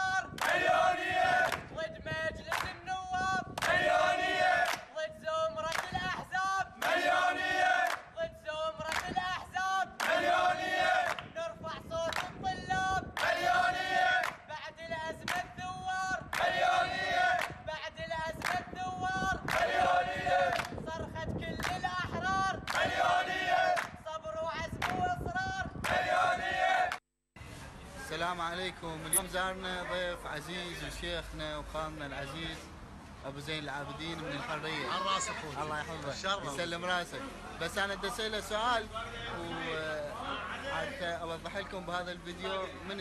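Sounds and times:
men chanting in unison: 0.0s - 27.0s
hand clapping: 1.4s - 1.7s, 2.5s - 2.8s, 4.6s - 4.9s, 5.7s - 5.9s, 8.9s - 9.1s, 11.0s - 11.3s, 12.1s - 12.4s, 14.2s - 14.4s, 18.4s - 18.6s, 20.5s - 20.7s, 21.6s - 21.8s, 24.8s - 25.0s.

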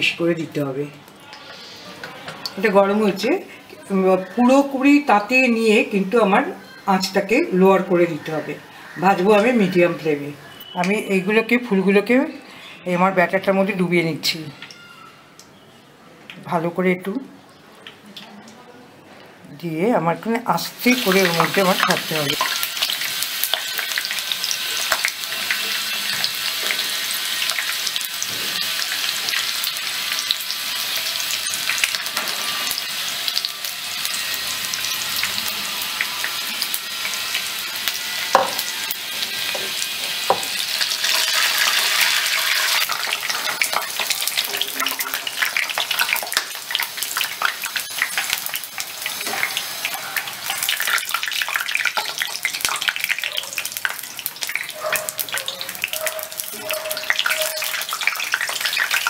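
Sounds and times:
food deep-frying in oil: 19.7s - 59.0s.

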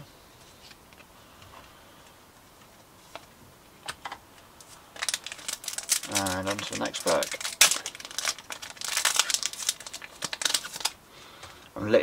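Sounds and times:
foil pack crinkling: 4.7s - 11.0s.

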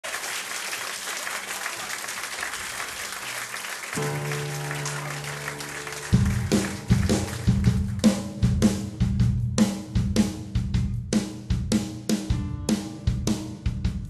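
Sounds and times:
crowd applauding: 0.0s - 8.6s
steady low note: 4.0s - 8.6s
band with loud drums: 4.8s - 14.0s.

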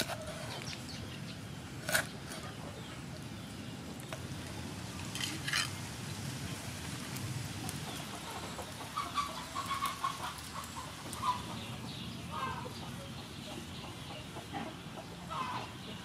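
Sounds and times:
hen clucking: 7.7s - 16.0s.

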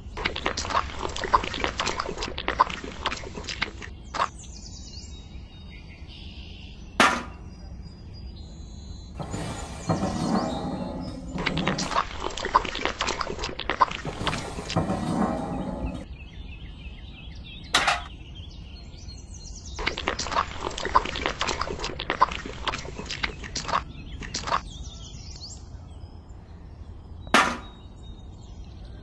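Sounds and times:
wet concrete slaps and scrapes: 0.0s - 4.3s, 9.2s - 16.0s, 19.8s - 24.6s
faint bird chirps: 3.9s - 9.2s
metal bucket knocks: 27.4s - 27.8s.

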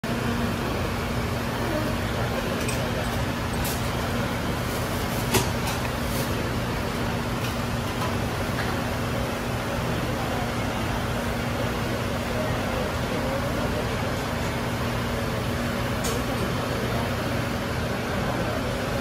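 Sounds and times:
kitchen ventilation rushing and humming: 0.0s - 19.0s.

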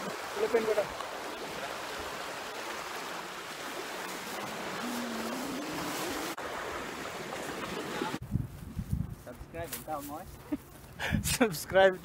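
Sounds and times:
waves splashing against rocks: 0.0s - 8.2s.

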